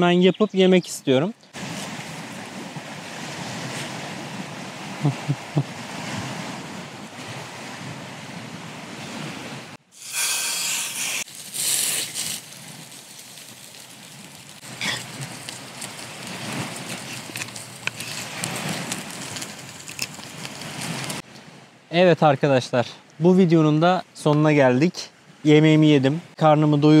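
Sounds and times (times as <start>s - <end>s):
wind: 0.0s - 27.0s
loud bright hissing bursts: 9.8s - 12.5s.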